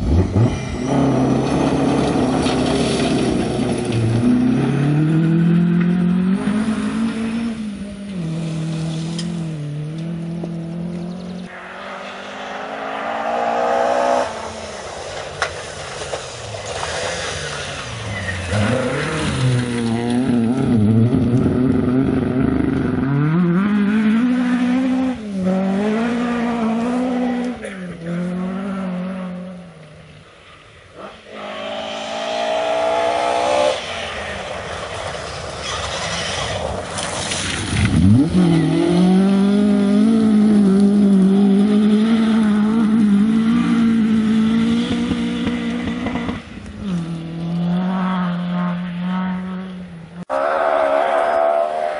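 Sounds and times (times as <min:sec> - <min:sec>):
rally car engines revving: 0:00.0 - 0:51.9
car sliding on gravel: 0:00.5 - 0:04.2, 0:14.4 - 0:20.5, 0:33.8 - 0:39.1.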